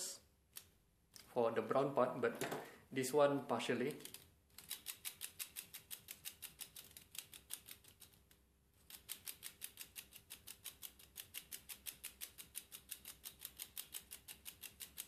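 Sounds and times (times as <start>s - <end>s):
clockwork ticking rapidly: 8.9s - 15.0s.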